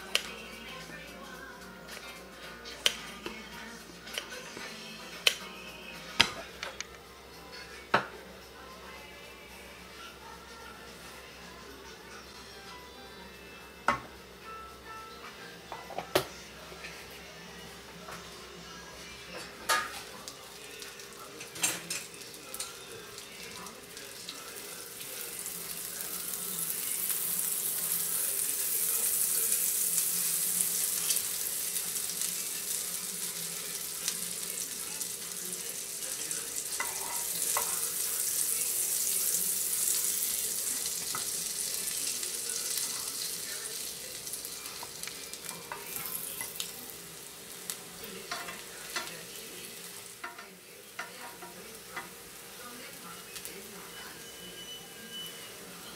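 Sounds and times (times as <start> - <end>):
butter sizzling in a pan: 19.0 - 55.9.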